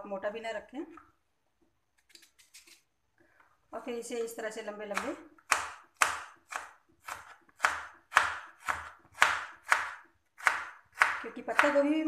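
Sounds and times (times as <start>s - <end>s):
knife slicing potato: 4.8s - 12.0s.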